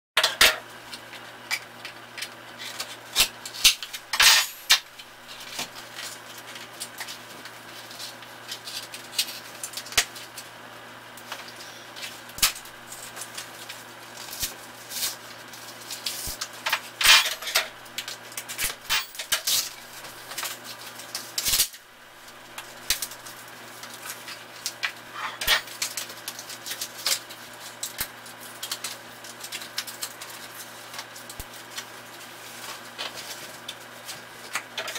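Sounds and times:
steady low hum: 0.3 - 26.4.

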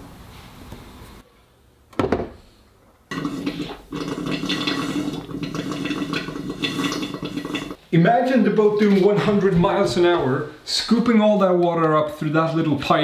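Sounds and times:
water rushing and gurgling through pipes: 3.1 - 7.8.

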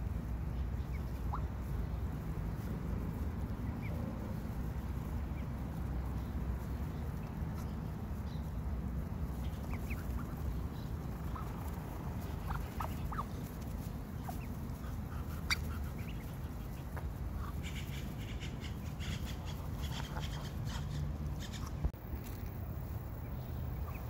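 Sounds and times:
duckling peeping: 0.4 - 22.5, 23.2 - 24.0.

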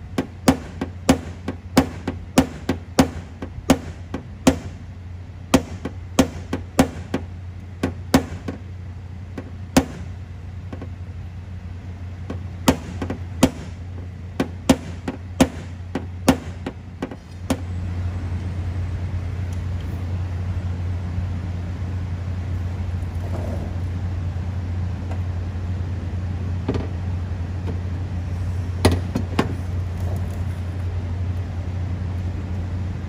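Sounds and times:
steady low hum: 0.0 - 33.0
hammer tapping sheet metal: 14.4 - 17.6.

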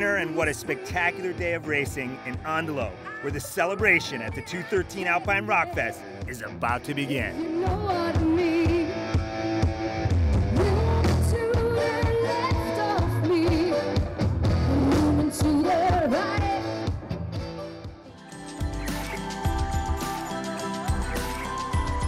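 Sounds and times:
woman singing lead: 0.0 - 6.3, 7.0 - 9.1, 10.5 - 17.0, 18.1 - 22.0
rock band playing: 13.7 - 22.0.

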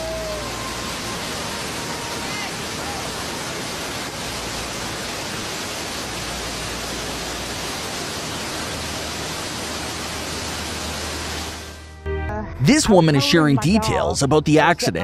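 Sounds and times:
fast-flowing river rushing: 0.0 - 11.8.

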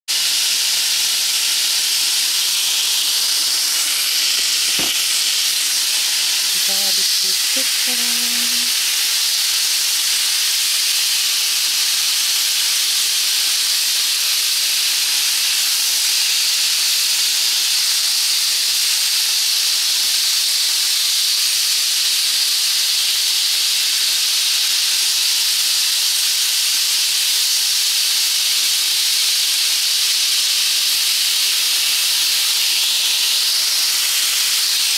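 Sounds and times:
chicken sizzling in a pan: 0.1 - 34.9
knock: 4.4 - 5.0.

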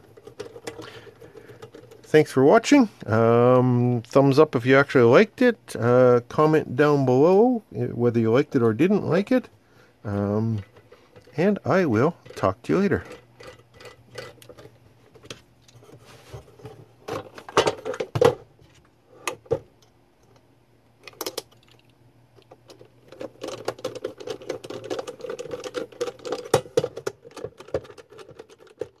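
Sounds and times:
metal parts clicking and knocking: 10.6 - 15.3, 21.0 - 29.0.

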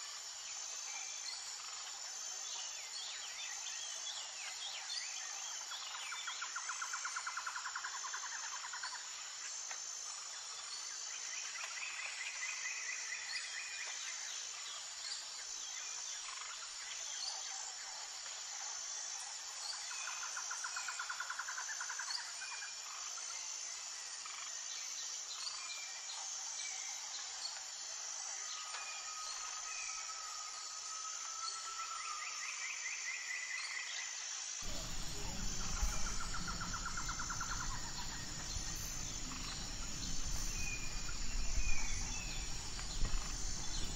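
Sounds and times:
birds chirping trills: 34.6 - 43.9
pulsing insect buzz: 34.6 - 43.9.

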